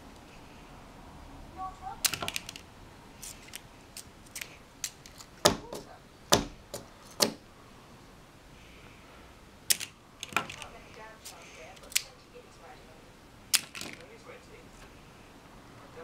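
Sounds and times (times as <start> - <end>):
plastic toy parts clicking: 2.0 - 7.4, 9.7 - 12.2, 13.5 - 14.1.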